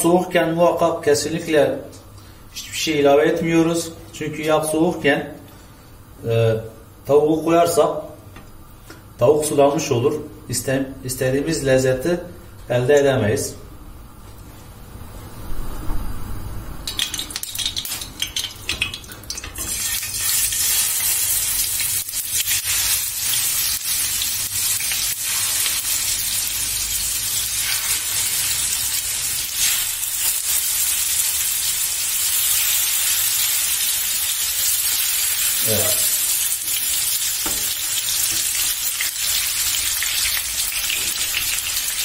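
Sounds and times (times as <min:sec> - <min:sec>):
chicken sizzling in frying pan: 0:16.9 - 0:42.0.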